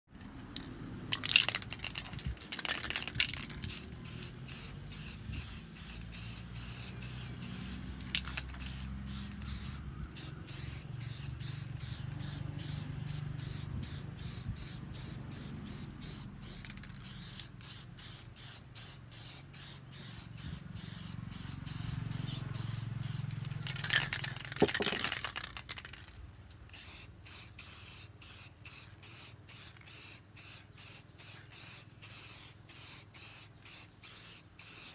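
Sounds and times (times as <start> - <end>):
handling clicks and rustles: 0.1 - 4.0, 23.2 - 26.7
spray can hissing: 1.2 - 26.0, 26.7 - 34.9.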